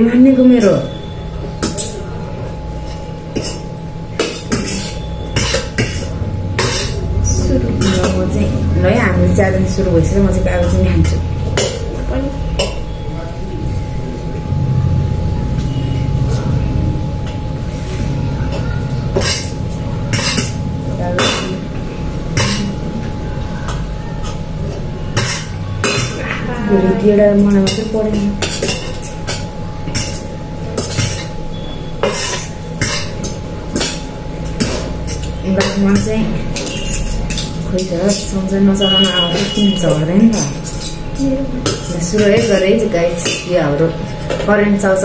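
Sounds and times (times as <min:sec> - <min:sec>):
low steady hum: 0:00.0 - 0:45.0
steady low rumble: 0:06.1 - 0:23.4.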